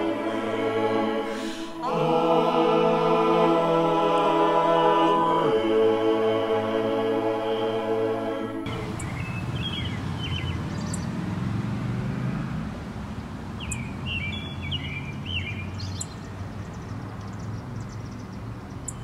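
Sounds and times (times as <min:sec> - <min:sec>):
bird-like chirping: 0:08.7 - 0:11.1, 0:13.6 - 0:16.4, 0:18.8 - 0:19.0.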